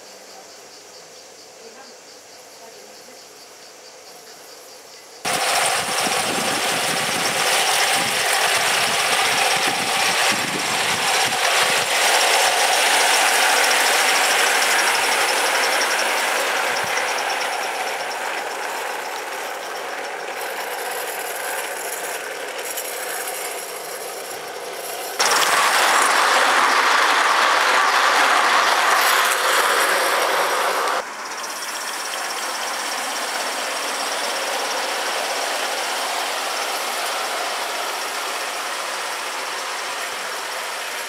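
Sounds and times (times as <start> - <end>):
model steam train rattling past: 5.2 - 41.0.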